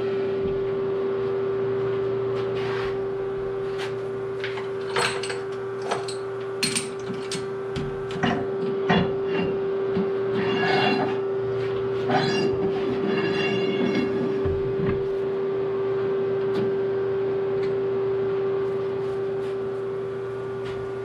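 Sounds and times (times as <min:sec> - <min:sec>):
steady machine hum: 0:00.0 - 0:21.0
metallic clanks and scraping: 0:10.3 - 0:14.5.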